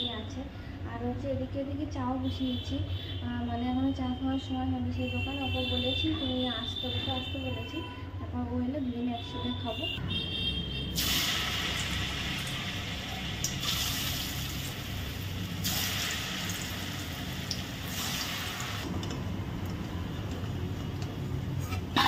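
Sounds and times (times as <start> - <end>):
hot oil sizzling: 10.9 - 22.0.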